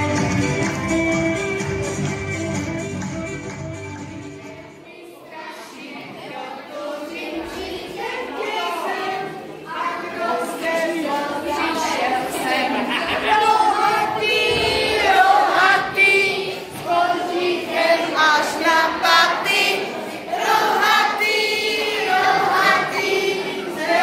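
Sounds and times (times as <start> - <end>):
women and children singing: 4.1 - 24.0.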